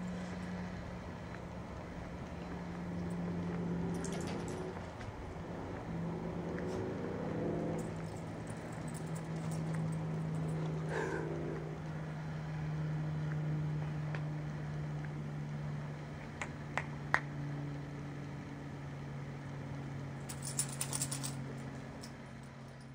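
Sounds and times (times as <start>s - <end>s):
low hum: 0.0s - 22.9s
dog claws clicking on patio: 2.3s - 11.7s, 20.3s - 22.9s
jingly clicks: 20.3s - 21.4s.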